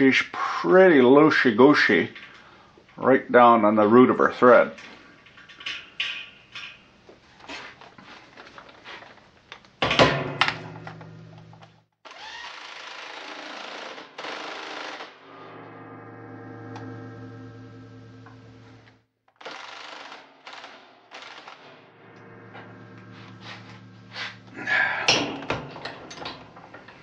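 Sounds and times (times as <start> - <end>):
motor hum: 16.0 - 19.0, 21.9 - 25.8
loud metal clank: 24.7 - 26.8.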